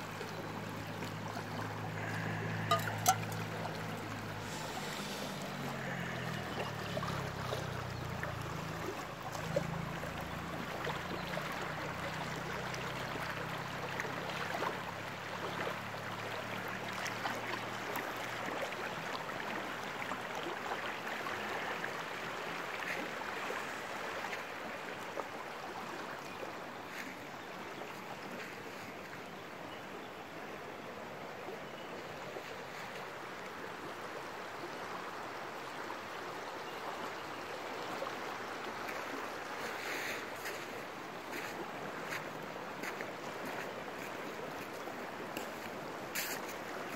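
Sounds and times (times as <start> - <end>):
river rushing over rocks: 0.0 - 11.0.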